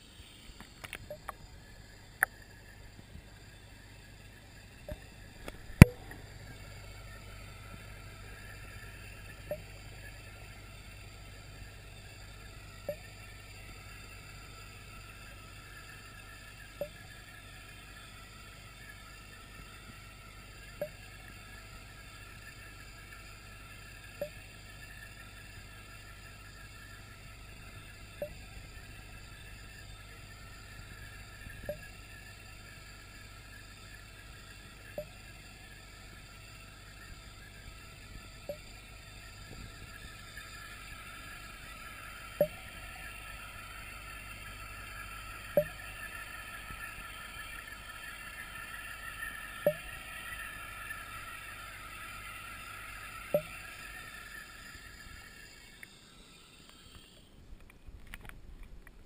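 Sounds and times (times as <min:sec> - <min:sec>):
aquarium equipment hum: 0:00.0 - 0:59.0
sharp click: 0:04.9 - 0:06.2.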